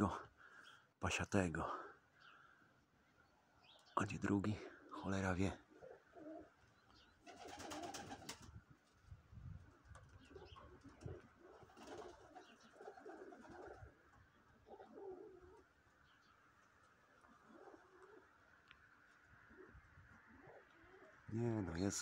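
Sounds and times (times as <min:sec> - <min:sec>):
pigeons cooing: 0:05.6 - 0:06.6, 0:07.2 - 0:08.4, 0:10.0 - 0:15.8, 0:17.2 - 0:18.4, 0:19.4 - 0:21.6.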